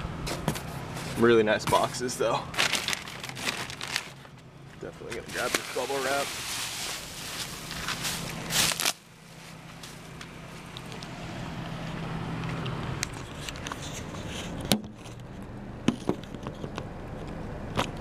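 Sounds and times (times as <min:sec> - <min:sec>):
steady low hum: 0:00.0 - 0:17.8
bubble wrap crinkling: 0:02.5 - 0:04.4, 0:05.2 - 0:10.0.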